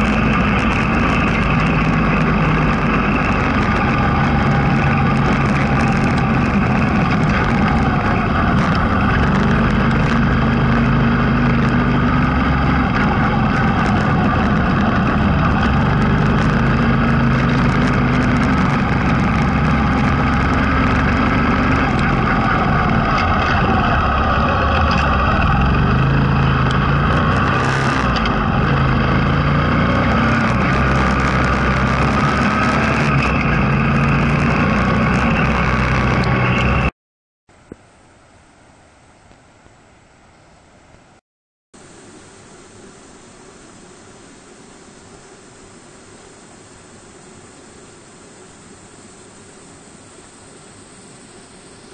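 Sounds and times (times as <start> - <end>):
motorcycle engine running: 0.0 - 36.9
road noise: 0.0 - 36.9
wind noise: 0.0 - 36.9.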